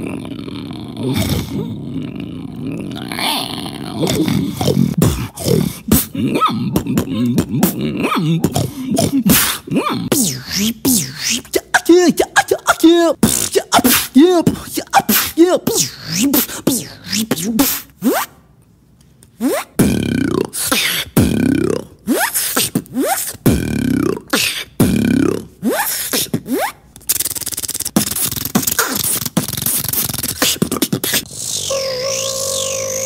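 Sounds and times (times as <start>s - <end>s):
beatboxer imitating record scratching: 0.0s - 1.7s, 2.3s - 18.4s, 19.2s - 33.0s
vocal hissing and clicking: 27.0s - 33.0s.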